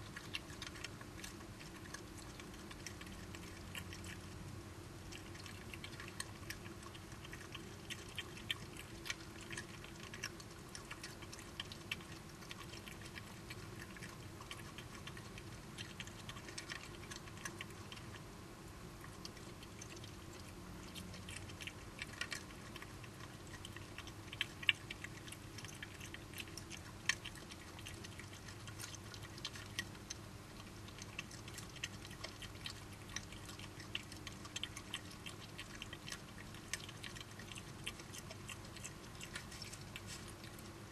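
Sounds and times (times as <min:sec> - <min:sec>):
badgers chewing food: 0:00.0 - 0:40.9
steady low hum: 0:00.0 - 0:40.9.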